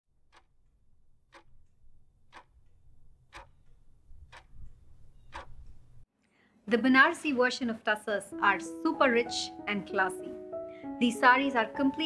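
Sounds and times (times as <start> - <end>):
clock ticking: 0.2 - 6.0.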